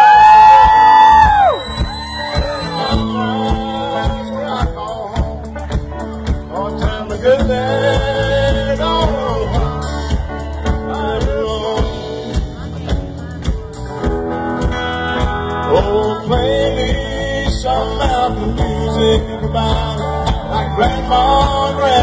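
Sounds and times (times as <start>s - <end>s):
live band with drums and guitar: 0.0s - 22.0s
voices singing: 1.8s - 12.9s.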